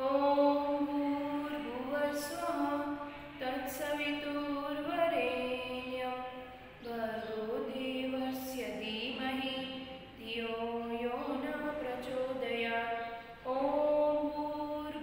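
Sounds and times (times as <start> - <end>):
woman singing unaccompanied: 0.0 - 15.0.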